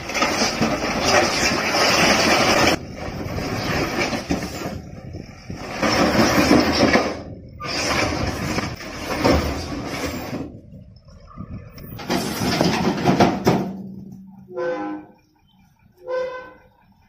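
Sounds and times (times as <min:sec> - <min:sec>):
concrete blocks tumbling onto pile: 0:11.9 - 0:14.2.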